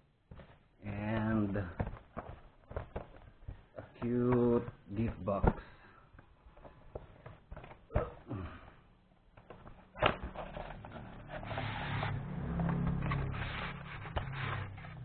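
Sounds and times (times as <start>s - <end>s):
styrofoam scraping on cardboard: 10.3s - 15.0s.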